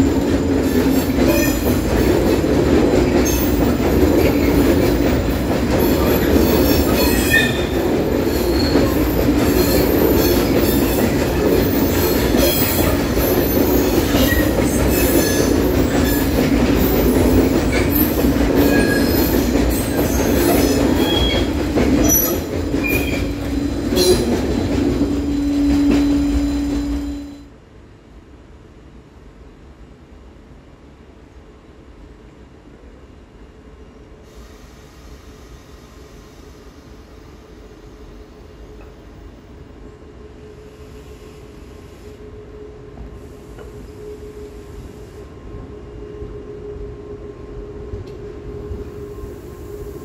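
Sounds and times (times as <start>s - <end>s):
train wheels rumbling on rail: 0.0s - 50.0s
high wheel squeals: 17.9s - 27.4s.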